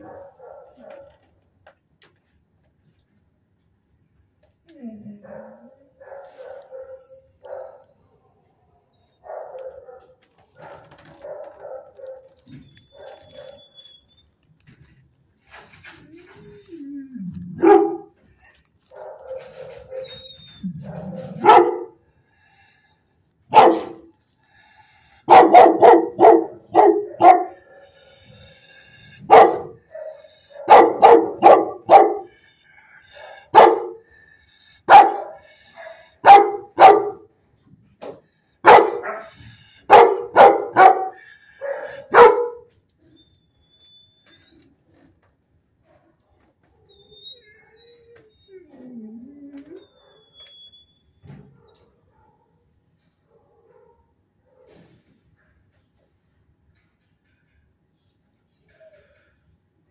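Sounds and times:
dog barking: 0.0 - 1.2, 5.2 - 7.8, 9.2 - 12.3, 17.6 - 18.2, 18.9 - 20.0, 20.8 - 22.0, 23.5 - 24.1, 25.3 - 27.8, 29.2 - 32.3, 33.2 - 34.0, 34.9 - 37.3, 38.6 - 42.7, 51.6 - 52.6.

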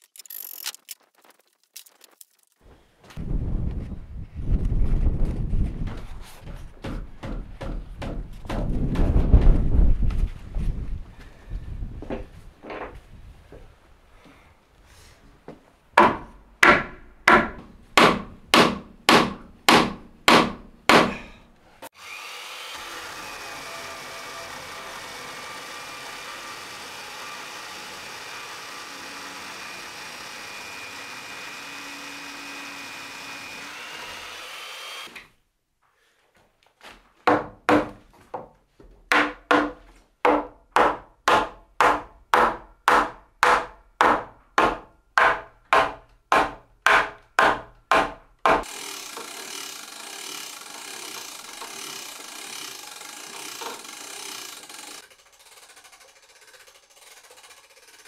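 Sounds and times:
wooden mallet knocking timber: 6.8 - 9.2, 16.0 - 21.3, 37.3 - 38.5, 39.1 - 48.7
portable mortiser running: 48.6 - 58.0.

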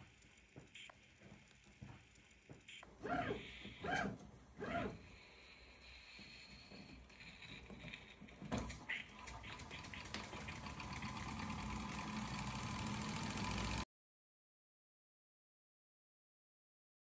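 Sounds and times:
toy steam engine exhaust beats: 0.0 - 7.7, 8.9 - 13.8.

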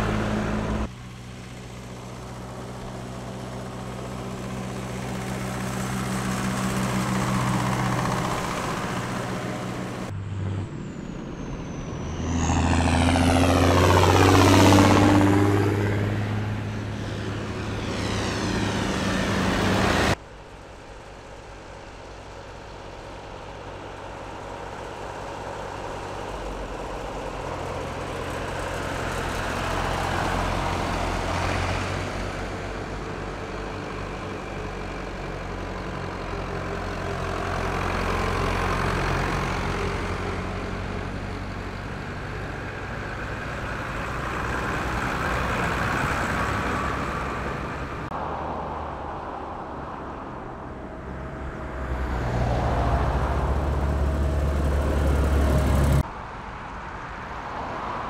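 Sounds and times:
tractor engines running: 0.0 - 48.2, 50.6 - 56.1
tractor passing close by: 0.0 - 56.1.

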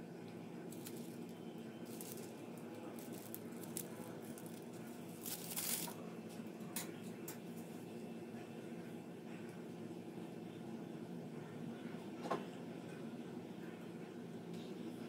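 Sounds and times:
plastic bag crinkling: 0.7 - 6.0.

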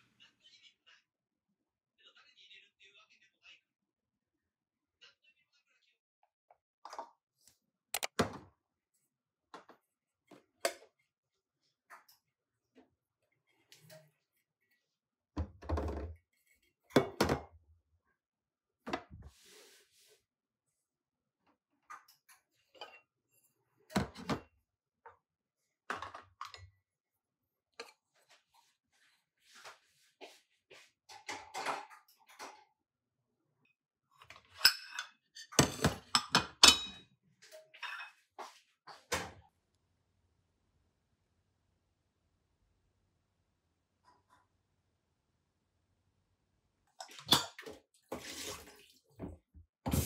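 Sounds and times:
ceramic plates clinking on metal counter: 34.6 - 37.0.

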